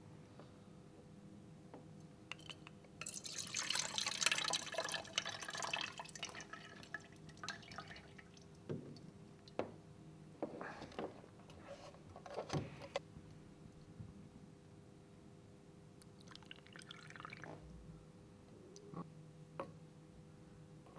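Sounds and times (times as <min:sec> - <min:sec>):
fluid dripping into plastic jug: 0:02.3 - 0:09.6.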